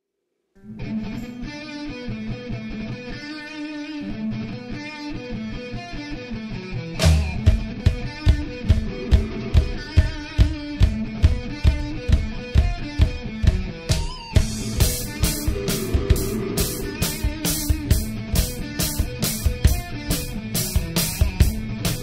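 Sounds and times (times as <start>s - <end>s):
electric guitar playing: 0.6s - 22.0s
drums and bass beat: 7.0s - 22.0s.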